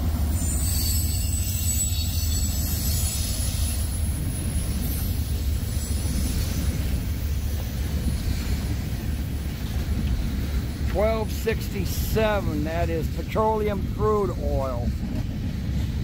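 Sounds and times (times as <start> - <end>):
train wheels rumbling on rail: 0.0 - 16.0
faint high squeal: 0.3 - 6.7.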